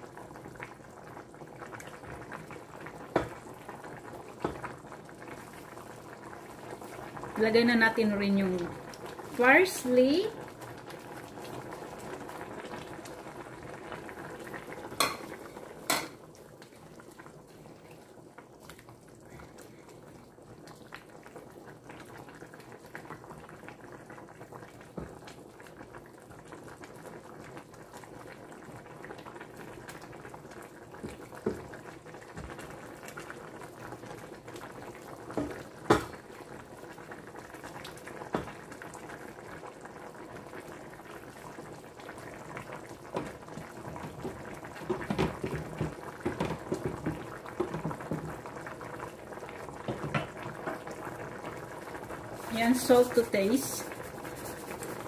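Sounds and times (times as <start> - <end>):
soup bubbling in a pan: 0.0 - 55.0
wooden spoon stirring: 43.0 - 48.7, 52.3 - 55.0.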